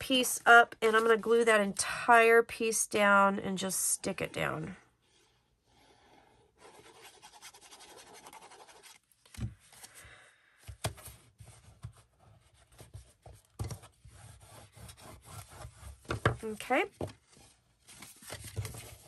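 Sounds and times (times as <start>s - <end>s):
cardstock rubbing and scratching: 5.9s - 9.0s, 11.0s - 16.8s.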